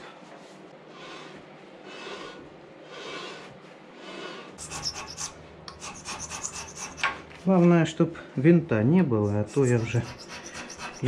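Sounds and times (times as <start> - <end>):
metal rasping on cast iron: 4.6 - 7.2, 9.4 - 11.0.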